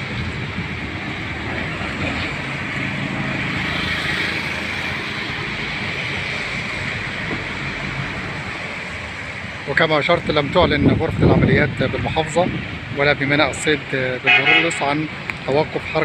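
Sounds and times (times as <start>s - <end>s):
wind noise on microphone: 0.0s - 5.0s, 10.1s - 14.0s
vehicle engine hum: 0.0s - 16.0s.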